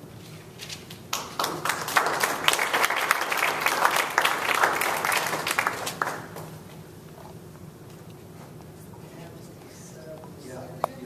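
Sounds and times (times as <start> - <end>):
audience applauding: 1.1 - 6.6.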